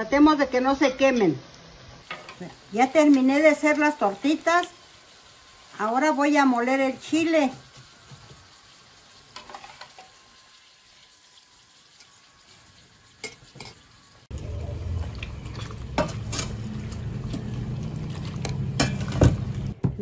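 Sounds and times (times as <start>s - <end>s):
oil sizzling in frying pan: 0.0s - 19.8s
low hum: 14.3s - 19.8s.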